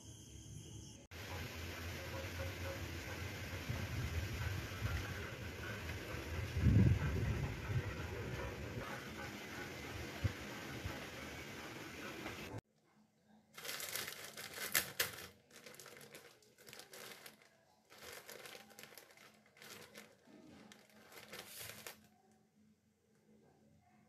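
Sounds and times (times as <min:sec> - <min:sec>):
plastic bread bag crinkling: 0:13.6 - 0:22.2.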